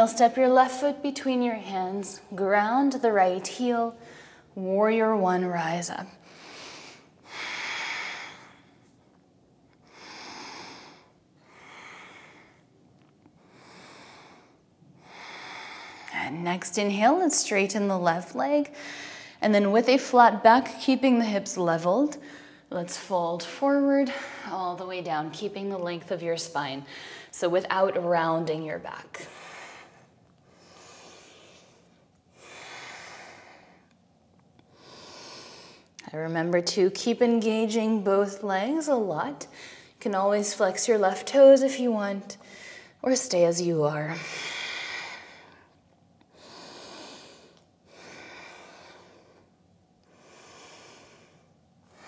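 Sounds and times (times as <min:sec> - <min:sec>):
woman breathing softly: 0:13.4 - 0:16.3, 0:26.9 - 0:27.4, 0:29.2 - 0:33.9, 0:44.1 - 0:52.0.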